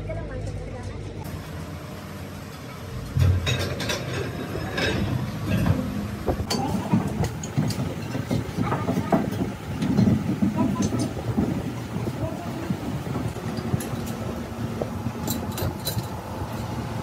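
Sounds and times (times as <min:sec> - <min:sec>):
metal clanks and knocks: 0:02.5 - 0:12.1, 0:13.2 - 0:16.8.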